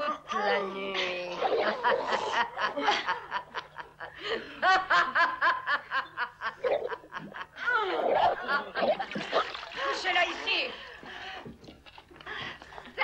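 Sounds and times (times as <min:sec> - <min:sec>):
women laughing: 0:01.4 - 0:08.8.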